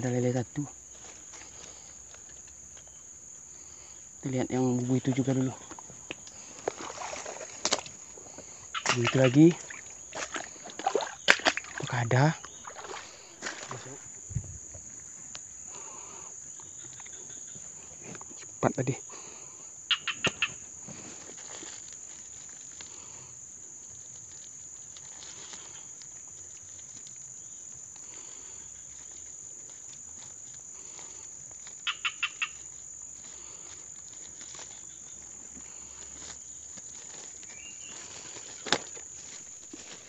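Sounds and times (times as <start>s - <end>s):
insects droning: 0.0s - 40.0s.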